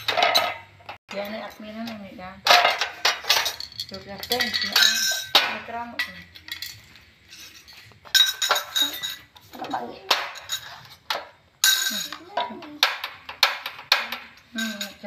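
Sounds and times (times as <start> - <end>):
metal gas canister clinks and clunks: 0.0 - 1.2.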